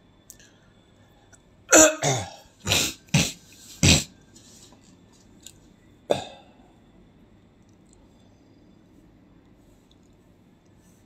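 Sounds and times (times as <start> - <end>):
person coughing hard: 1.7 - 4.2, 6.1 - 6.5.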